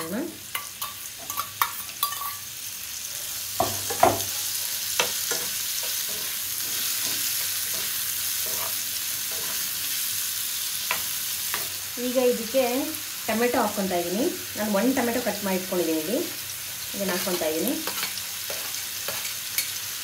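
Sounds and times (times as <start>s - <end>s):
onions sizzling in oil: 0.0s - 20.0s
spoon scraping bowl and pan: 0.5s - 2.5s, 3.2s - 9.9s, 17.0s - 20.0s.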